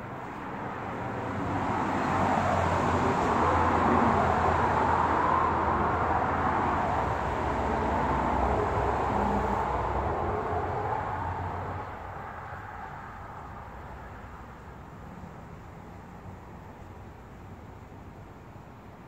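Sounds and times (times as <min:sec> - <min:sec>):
passing vehicle rushing: 0:00.6 - 0:14.4.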